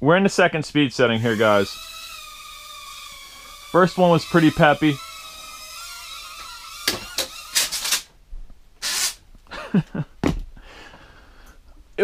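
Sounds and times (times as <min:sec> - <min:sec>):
drone motors whining: 0:01.2 - 0:08.0.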